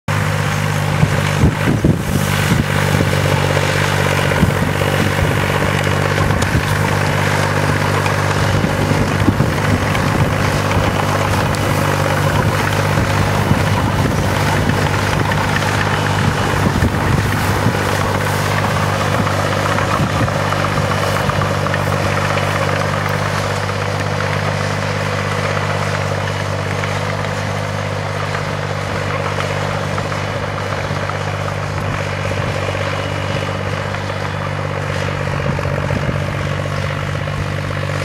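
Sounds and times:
bulldozer engine running under load: 0.1 - 38.0.

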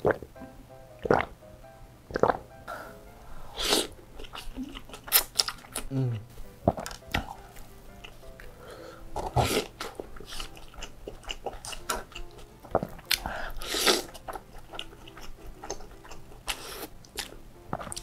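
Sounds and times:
noodle slurping: 3.5 - 5.8, 9.2 - 18.0
chewing and mouth noises: 3.8 - 5.9, 9.2 - 18.0.

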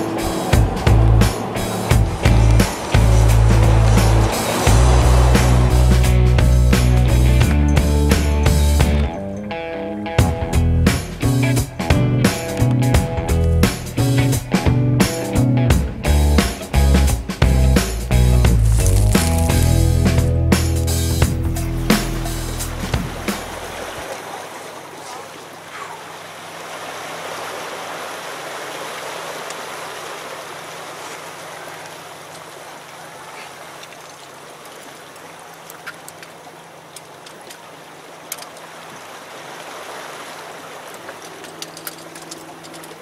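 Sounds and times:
water washing against rocks: 0.0 - 7.4, 17.8 - 20.1, 21.9 - 43.0
low hum: 0.0 - 9.1
music: 0.0 - 23.9.

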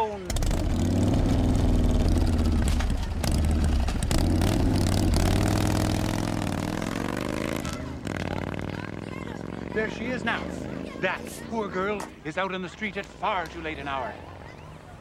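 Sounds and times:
vehicle engine running: 0.2 - 11.9.

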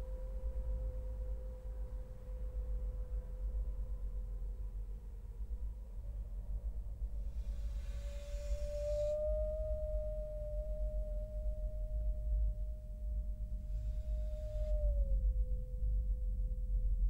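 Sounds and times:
low rumbling drone: 0.0 - 17.0
steady pure tone: 6.9 - 17.0
hiss: 7.3 - 9.1.

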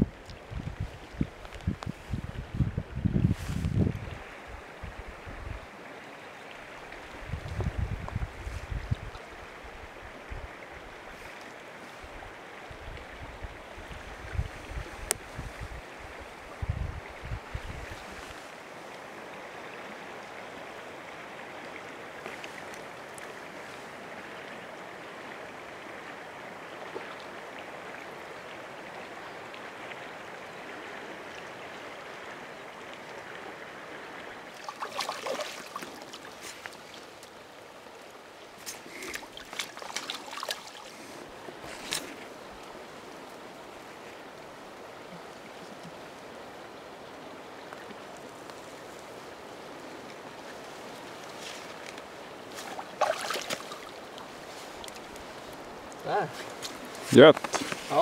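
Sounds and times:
flowing stream: 0.0 - 58.0
fish splashing at the surface: 34.5 - 36.9, 52.6 - 54.0.

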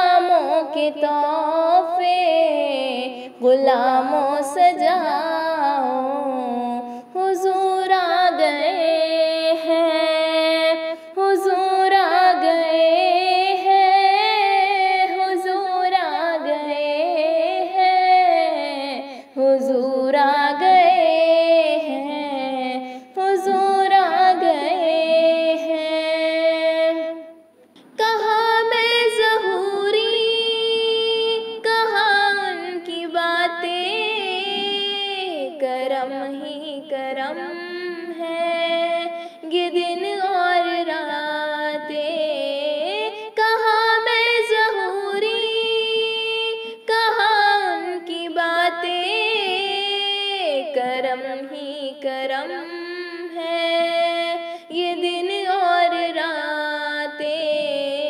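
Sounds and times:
woman singing: 0.0 - 58.0
singer breathing: 3.1 - 3.4, 6.8 - 7.2, 10.9 - 11.2, 22.8 - 23.2, 39.1 - 39.4, 54.4 - 54.7.

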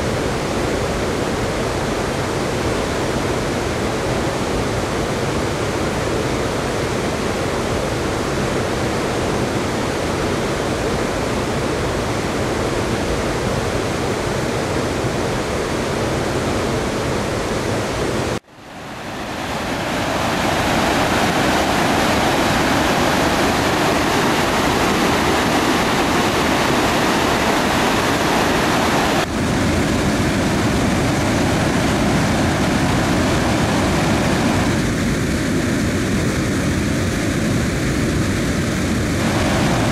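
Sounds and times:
floodwater rushing through tunnel: 0.0 - 39.9.

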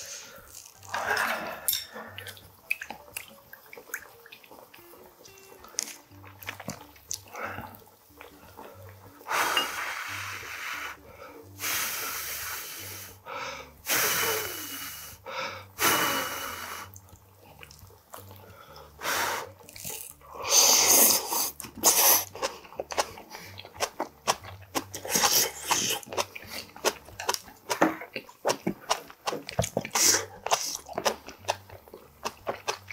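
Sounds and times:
wet chewing clicks: 2.1 - 8.7, 16.9 - 18.9, 19.6 - 20.2, 21.5 - 32.9
man blowing on hot food: 9.2 - 17.0, 18.9 - 22.5, 29.9 - 30.8
loud slurp: 20.5 - 22.6, 24.9 - 27.0, 29.8 - 30.9.

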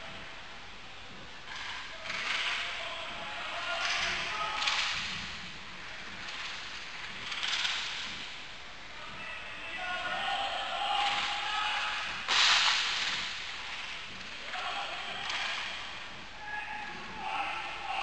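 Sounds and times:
skates swishing: 1.5 - 18.0
faint shouts: 9.0 - 12.3, 14.4 - 18.0.

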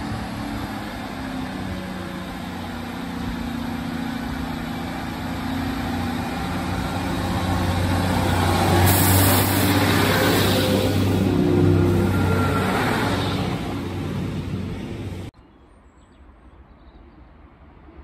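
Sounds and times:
diesel train engines droning: 0.0 - 15.4
wheels hissing on rail: 2.5 - 15.3.

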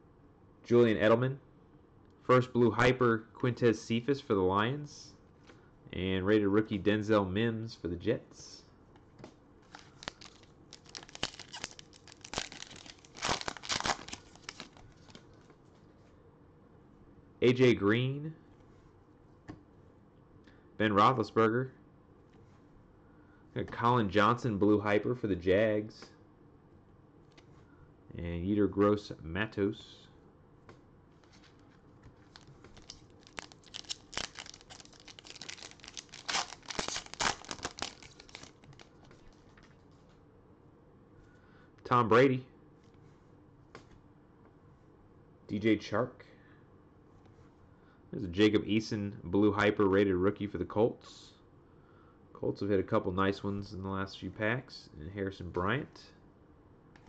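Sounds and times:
foil wrapper crinkling and tearing: 9.7 - 15.2, 32.2 - 39.2.

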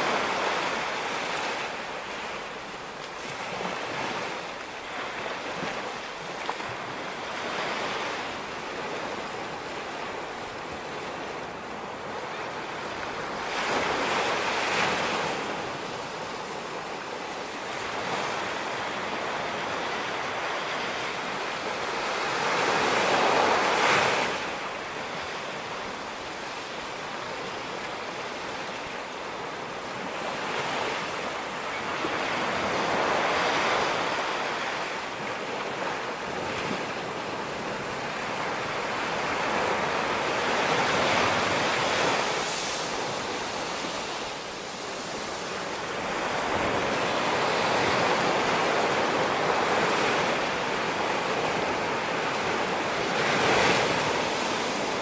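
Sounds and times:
sea waves washing onto sand: 32.1 - 55.0.

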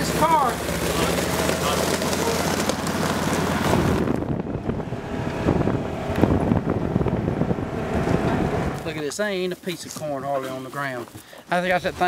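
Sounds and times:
vehicle engine running: 0.0 - 9.0
driving over gravel rumble: 0.0 - 12.0
wind buffeting microphone: 2.9 - 8.9.

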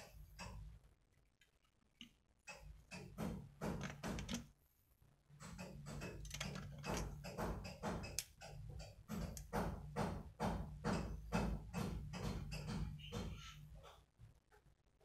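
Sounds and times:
screwdriver bits clicking and rattling: 6.0 - 9.5.

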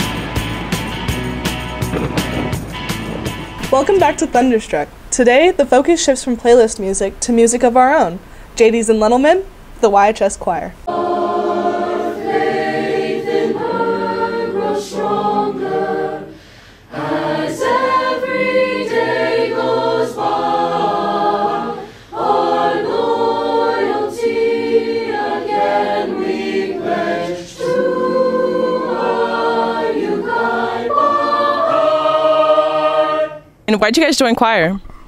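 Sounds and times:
children's choir singing: 10.8 - 33.6.

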